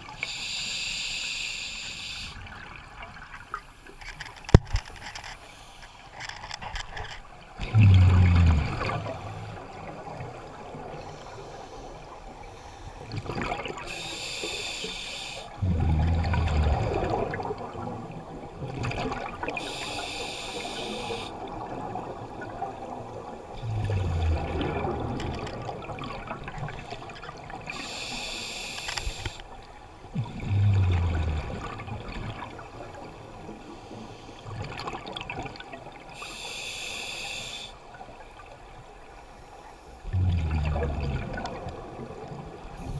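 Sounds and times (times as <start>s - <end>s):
exhaled air bubbling: 7.6s - 12.4s, 15.4s - 29.4s, 30.1s - 33.7s, 40.0s - 42.9s
hissing regulator inhalation: 13.9s - 15.8s, 19.6s - 21.4s, 27.7s - 29.4s, 36.2s - 37.8s.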